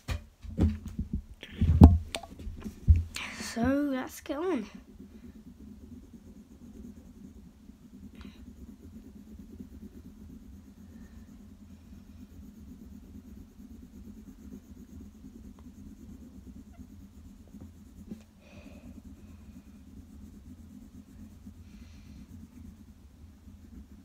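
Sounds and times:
pencil scratching on paper: 2.5s - 24.0s.

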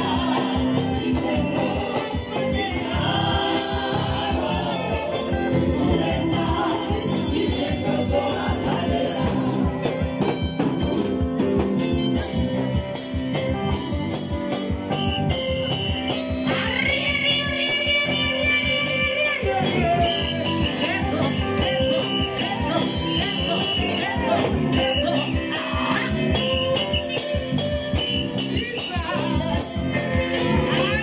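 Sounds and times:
church choir singing: 0.0s - 10.2s, 21.9s - 26.4s
drum kit beat: 0.0s - 31.0s
live band: 0.0s - 31.0s.

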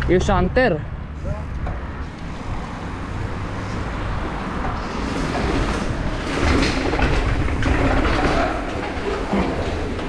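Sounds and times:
wind rumbling on microphone: 0.8s - 10.0s
bike rattling over rough ground: 3.9s - 10.0s.

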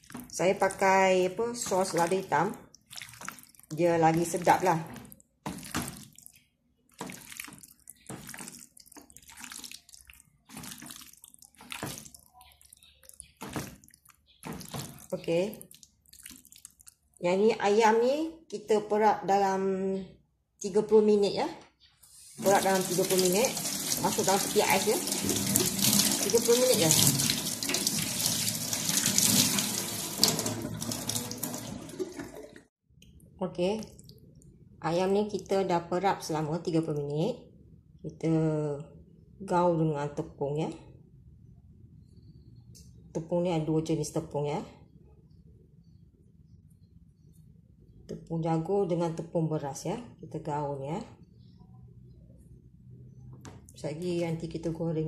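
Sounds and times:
wet squelching of kneaded meat: 0.0s - 17.3s
tap running into a sink: 22.4s - 32.6s.

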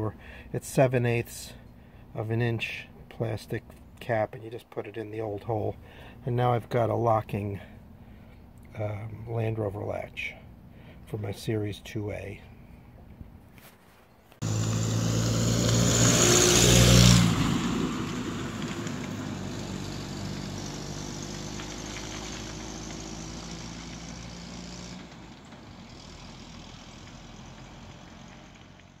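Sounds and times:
vehicle driving past: 14.4s - 29.0s.

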